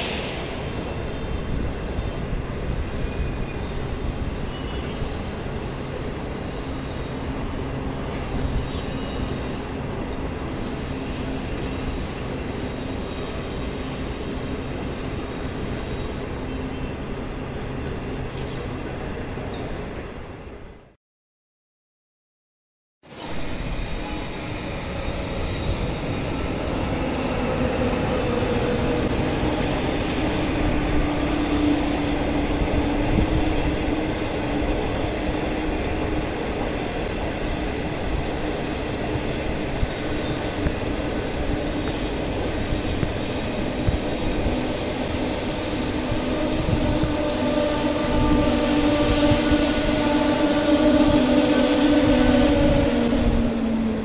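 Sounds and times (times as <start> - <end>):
train wheels rumbling on rails: 23.1 - 54.0.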